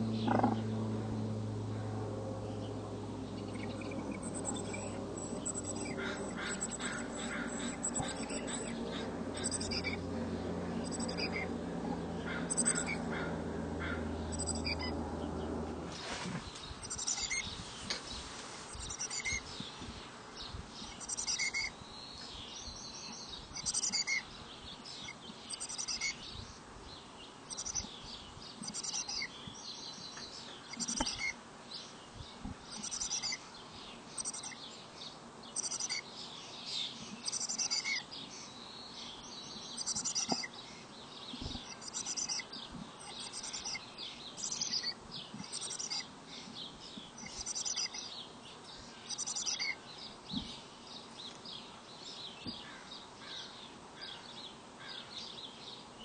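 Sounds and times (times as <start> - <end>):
chickadees chirping: 0.0 - 26.6, 27.3 - 31.9, 32.5 - 51.7
low steady hum: 0.0 - 53.9.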